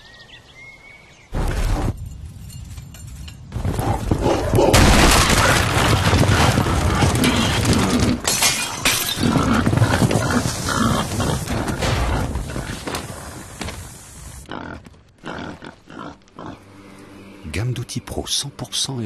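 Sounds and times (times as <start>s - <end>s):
boars stampeding: 3.5s - 16.3s
boars grunting: 3.6s - 8.3s, 9.0s - 13.5s, 14.4s - 16.7s
things crashing and breaking: 4.7s - 13.8s.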